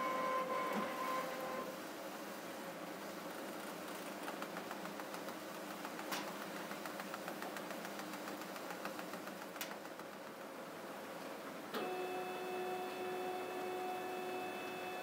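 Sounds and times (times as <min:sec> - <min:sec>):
printer machine hum: 0:00.0 - 0:05.1, 0:11.7 - 0:15.0.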